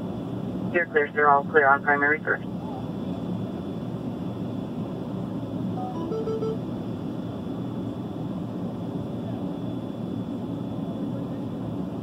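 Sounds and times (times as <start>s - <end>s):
short electronic beeps: 5.8s - 6.7s.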